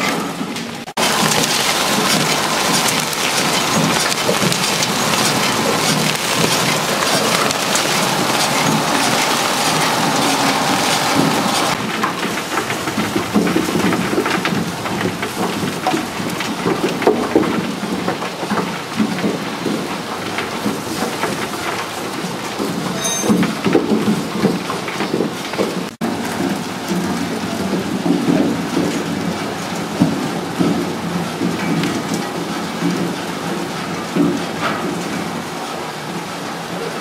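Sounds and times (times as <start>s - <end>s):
bulbs knocking on conveyor: 1.0s - 11.8s
soil rattling through machine: 1.0s - 16.9s.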